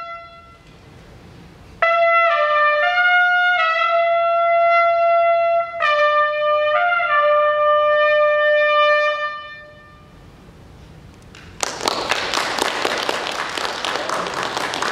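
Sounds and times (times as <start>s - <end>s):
solo trumpet note: 0.0s - 0.7s, 1.8s - 10.2s
audience applause: 11.4s - 14.9s.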